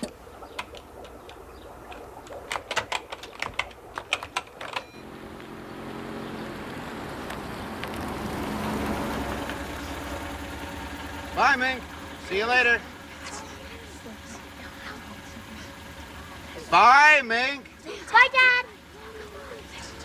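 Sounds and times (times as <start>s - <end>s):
car engine running: 0.0s - 20.0s.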